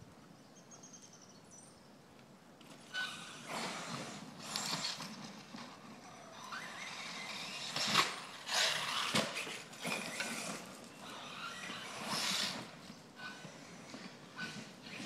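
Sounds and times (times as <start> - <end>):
tires spraying dirt and gravel: 3.0 - 12.8
electric motor whining: 6.1 - 15.0.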